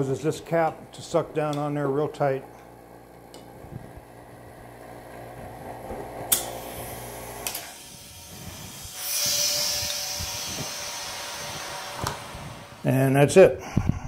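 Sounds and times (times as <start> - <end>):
electric vacuum pump humming: 0.0 - 13.6
air hissing: 6.3 - 14.0.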